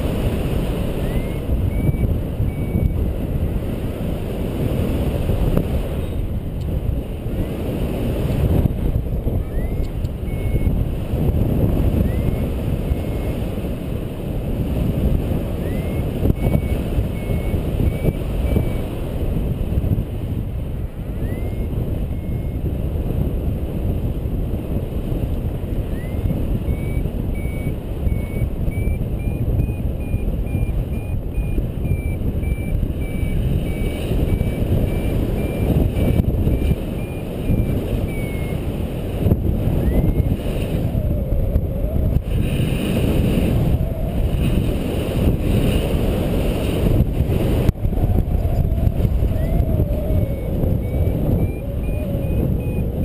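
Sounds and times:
wind rumbling over microphone: 0.0s - 53.0s
variometer rapid high beeps: 0.9s - 3.6s, 9.4s - 10.9s, 11.9s - 13.4s, 15.6s - 18.9s, 21.0s - 22.7s, 25.8s - 38.8s, 39.7s - 40.5s, 49.2s - 53.0s.

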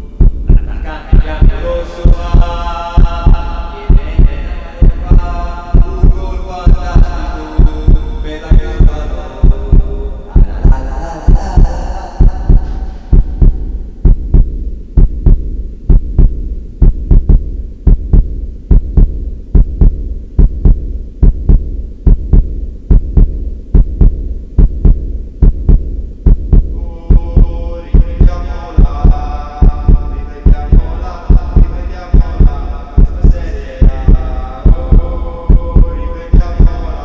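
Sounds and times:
heartbeat thumps: 0.0s - 37.0s
low hum: 0.0s - 37.0s
sustained tone: 26.6s - 37.0s.

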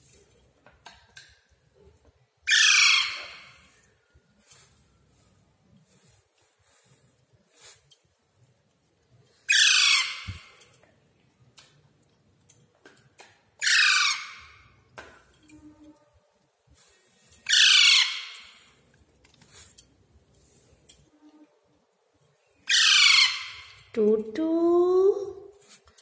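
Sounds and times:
parakeet squawking: 2.5s - 3.4s, 9.5s - 10.3s, 13.6s - 14.5s, 17.5s - 18.4s, 22.7s - 23.7s.

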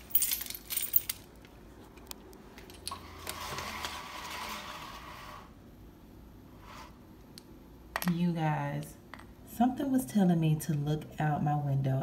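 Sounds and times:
window blind slats rattling: 2.8s - 5.5s.

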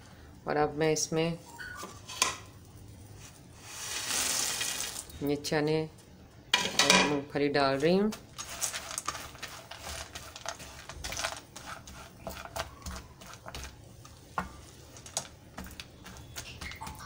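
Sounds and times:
spatula scraping a pan: 7.7s - 17.0s.

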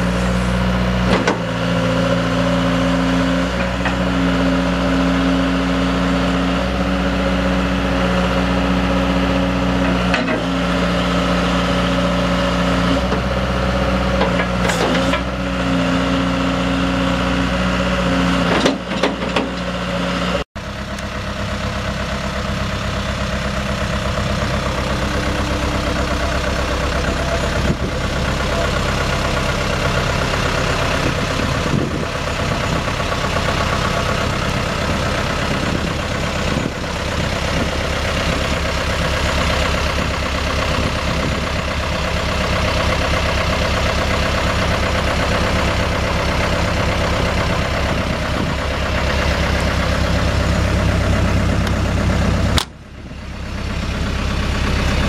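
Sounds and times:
excavator diesel engine: 0.0s - 55.0s
hydraulics working: 20.7s - 53.3s.

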